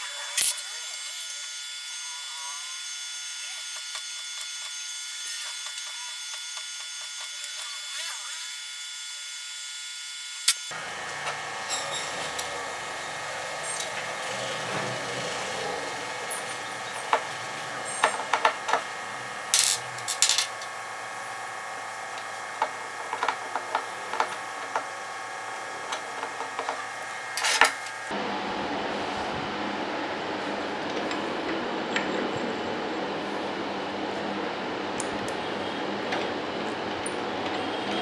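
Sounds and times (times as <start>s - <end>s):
steady hum: 10.4s - 38.0s.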